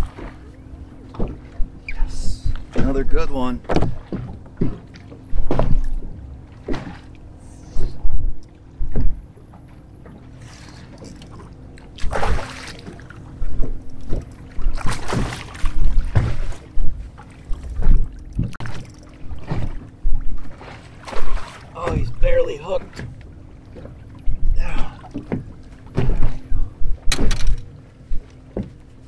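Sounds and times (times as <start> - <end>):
water thumping against boat: 0.0 - 28.9
wind against boat: 0.0 - 29.0
fish splashing at water surface: 12.0 - 13.1, 14.2 - 16.6.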